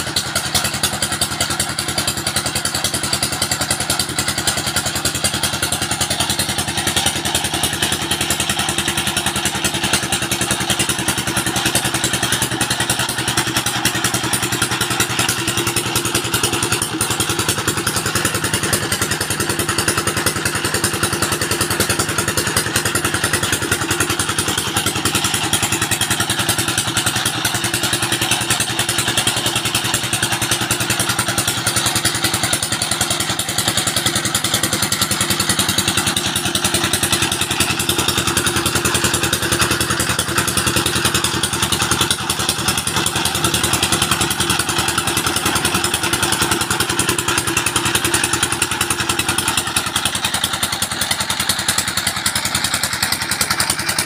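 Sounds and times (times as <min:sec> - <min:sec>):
diesel engine running steadily: 0:00.0 - 0:54.0.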